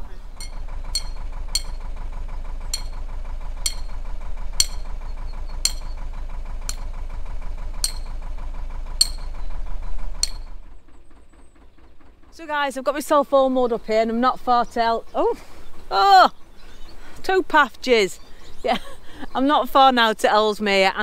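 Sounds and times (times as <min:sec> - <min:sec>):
diesel engine idling: 0:00.0 - 0:21.0
hammer on metal pin clanking: 0:00.4 - 0:01.8, 0:02.7 - 0:03.0, 0:03.6 - 0:04.0, 0:04.6 - 0:04.9, 0:05.6 - 0:06.0, 0:07.8 - 0:08.1, 0:09.0 - 0:09.3, 0:10.2 - 0:10.5.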